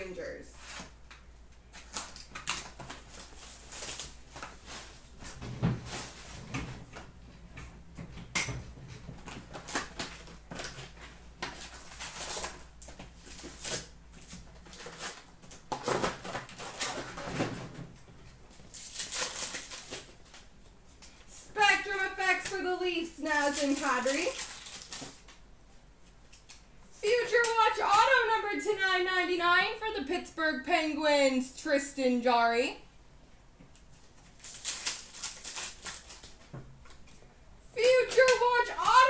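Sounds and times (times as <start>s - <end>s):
card packs crinkling: 0.6s - 6.4s, 9.2s - 17.5s, 18.6s - 21.1s, 21.8s - 25.4s, 34.0s - 37.2s.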